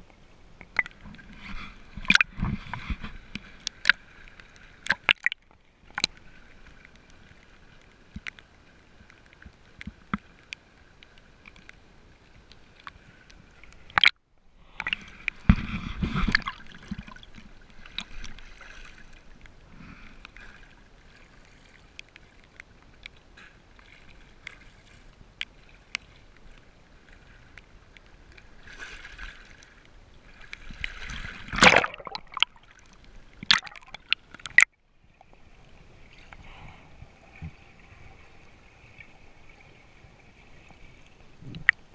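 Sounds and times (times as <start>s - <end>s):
water sloshing and lapping: 0.0s - 41.9s
water splashes: 0.0s - 41.9s
small clicks and knocks: 8.1s - 8.4s.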